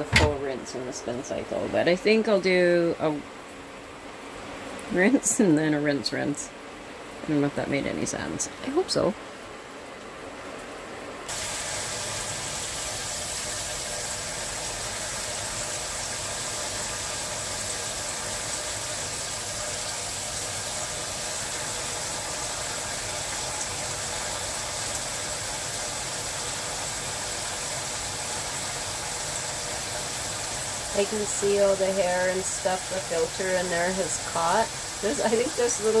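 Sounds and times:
shower water spraying into tub: 11.3s - 36.0s.

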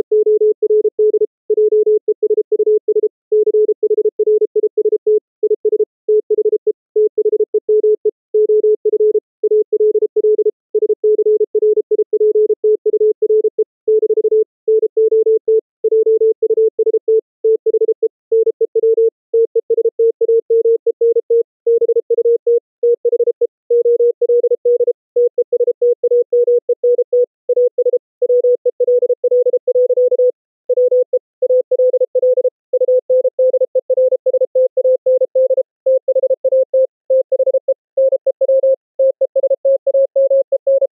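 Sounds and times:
morse code tone: 23.0s - 40.9s.

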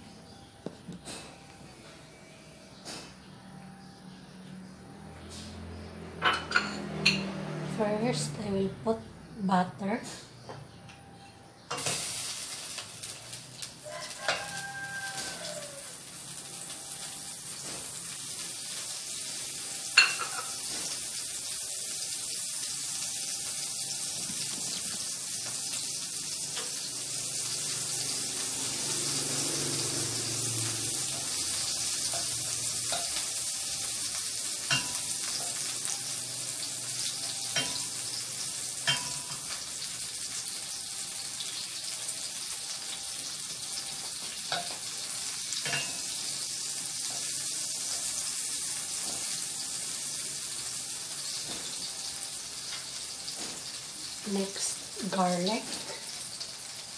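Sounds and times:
butter sizzling in a pan: 11.7s - 56.9s.

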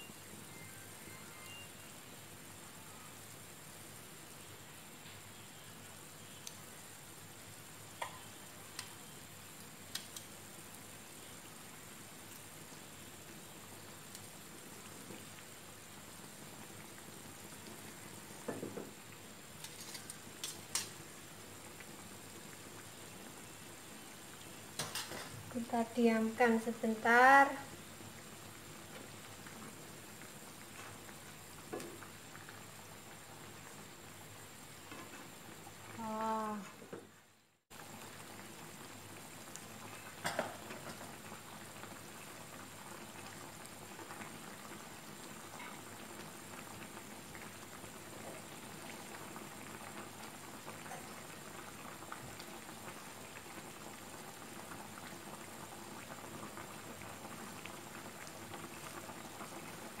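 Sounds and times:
brief pitched tone: 0.0s - 1.8s
broth bubbling and crackling: 7.6s - 25.6s, 27.5s - 60.0s.

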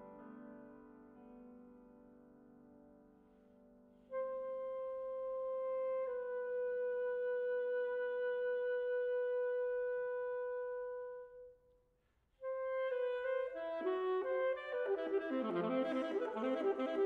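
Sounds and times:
alto saxophone playing: 4.1s - 11.6s, 12.4s - 17.0s.

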